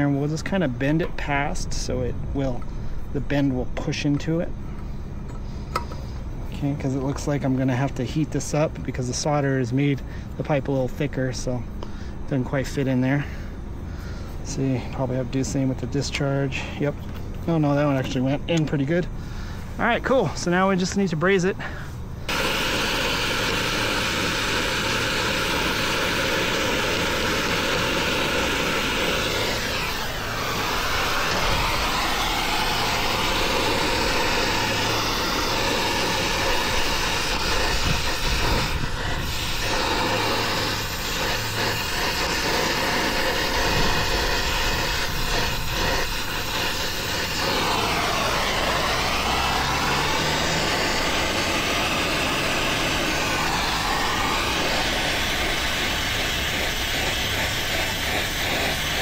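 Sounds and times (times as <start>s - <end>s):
torch burning with hiss: 22.3s - 59.0s.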